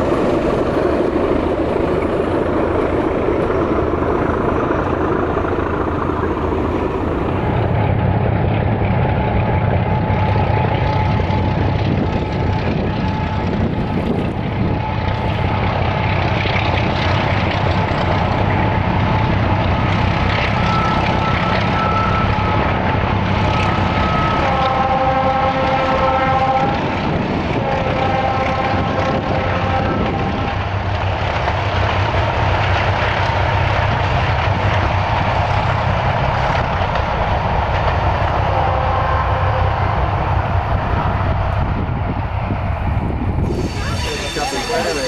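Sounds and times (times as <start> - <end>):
passing train rumble: 0.0 - 45.0
locomotive horns blasting: 23.7 - 26.8, 27.6 - 30.0.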